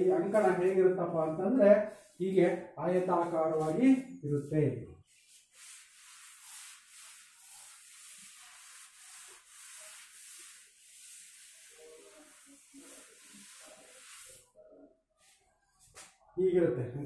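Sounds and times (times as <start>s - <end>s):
duster wiping blackboard: 3.0s - 14.5s.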